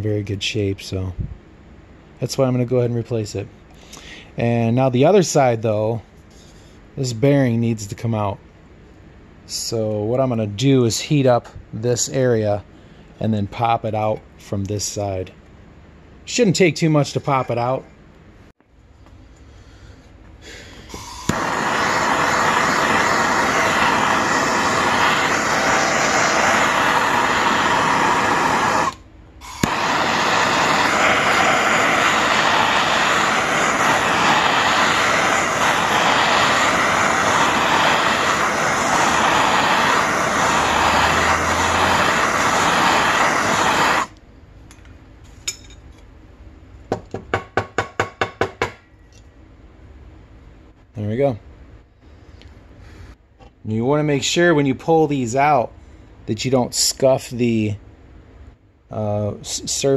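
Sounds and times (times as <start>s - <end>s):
gas torch hissing: 20.4s - 44.2s.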